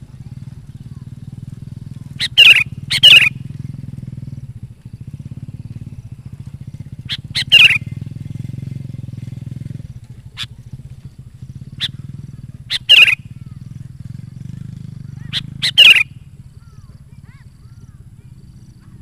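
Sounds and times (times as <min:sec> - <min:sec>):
steady low hum: 0:00.0 - 0:19.0
bird singing bubbly phrases: 0:02.0 - 0:03.5, 0:07.1 - 0:08.0, 0:11.7 - 0:13.7, 0:15.2 - 0:18.1.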